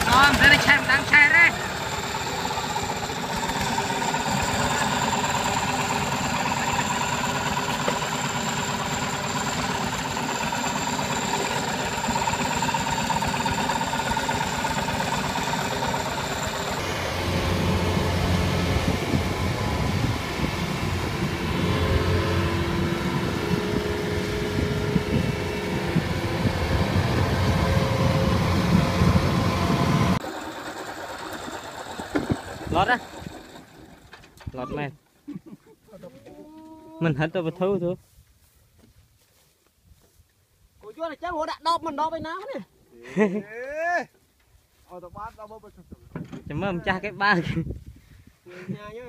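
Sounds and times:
diesel tractor engine running: 0.0 - 34.5.

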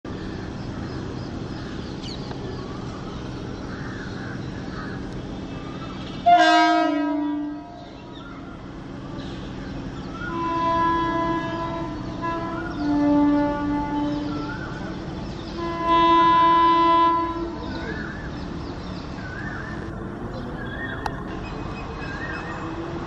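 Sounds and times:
train rumble: 0.1 - 23.0
locomotive horn blast: 6.2 - 8.0, 10.2 - 18.0.

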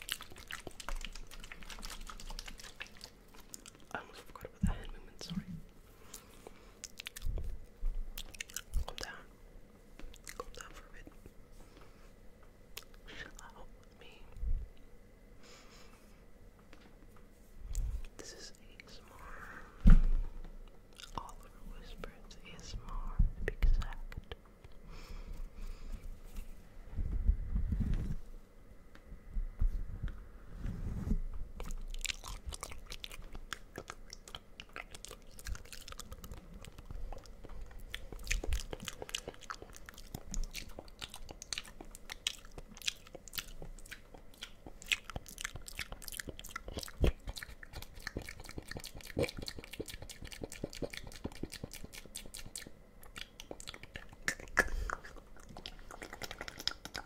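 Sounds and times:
wet mouth clicks and pops: 31.6 - 57.0.

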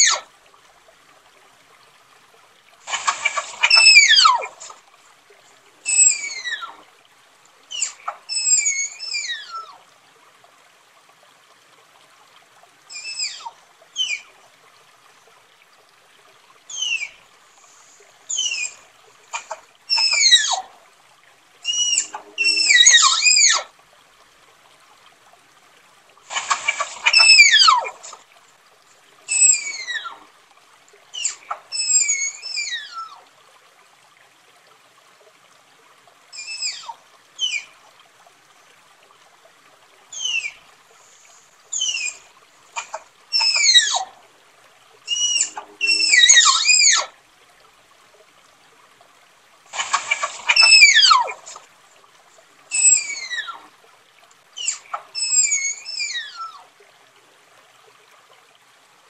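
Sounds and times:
tapir whistling squeals: 3.0 - 4.6, 5.9 - 6.8, 7.7 - 9.7, 12.9 - 14.2, 16.7 - 17.2, 18.3 - 18.8, 19.4 - 20.6, 21.6 - 23.7, 26.4 - 28.0, 29.3 - 30.2, 31.2 - 33.2, 36.4 - 37.7, 40.2 - 40.6, 41.7 - 42.2, 42.8 - 44.1, 45.1 - 47.1, 49.8 - 51.6, 52.7 - 53.6, 54.6 - 56.6.

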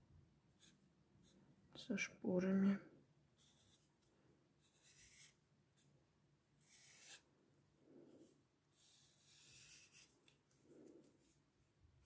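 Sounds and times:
marker scratching on paper: 3.4 - 3.9, 4.6 - 5.9, 6.6 - 7.2, 8.7 - 10.2.

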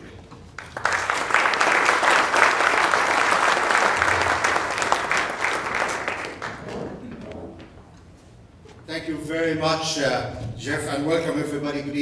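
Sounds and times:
audience applauding: 0.6 - 7.0.

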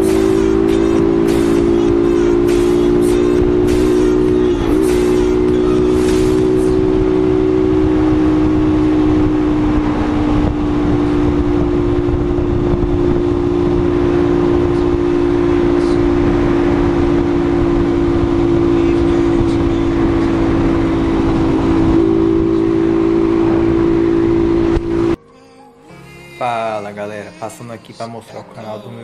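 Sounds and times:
motorcycle engine cruising: 0.0 - 25.2
wind on microphone: 5.4 - 25.2.

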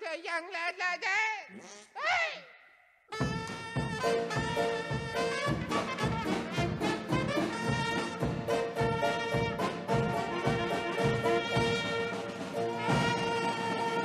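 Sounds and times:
big band swing music: 3.1 - 14.0
trumpets and trombones: 3.1 - 14.0
steady drum beat: 3.2 - 14.0.

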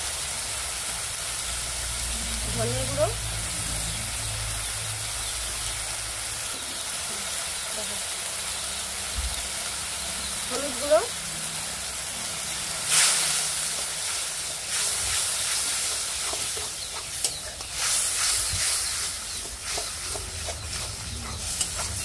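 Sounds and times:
paste sizzling in hot oil: 0.0 - 22.0
metal spatula scraping: 12.8 - 22.0.

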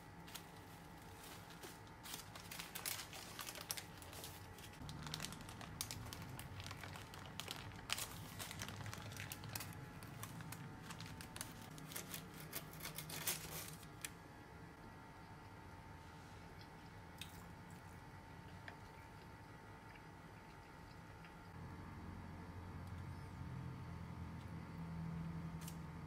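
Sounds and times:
baking paper crinkling: 0.1 - 14.2.

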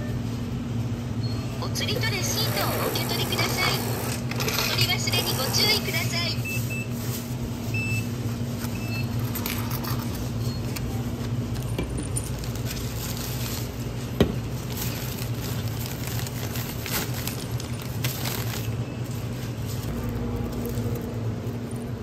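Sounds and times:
steady low hum: 0.0 - 22.0
small hard objects clinking: 14.7 - 22.0.

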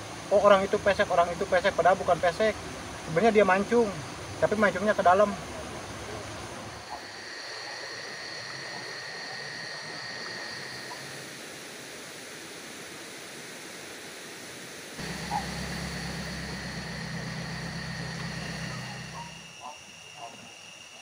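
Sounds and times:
faint high whine: 0.0 - 21.0
low steady hum: 15.0 - 21.0.

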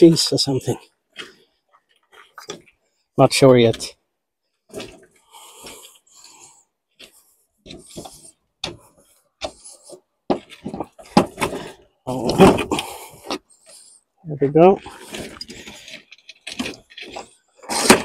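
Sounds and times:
short scraping rubs: 14.8 - 18.0.

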